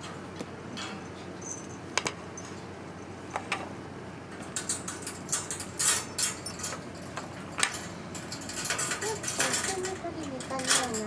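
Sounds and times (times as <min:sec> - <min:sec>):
metal chain rattling: 0:00.8 - 0:03.1, 0:04.6 - 0:11.0.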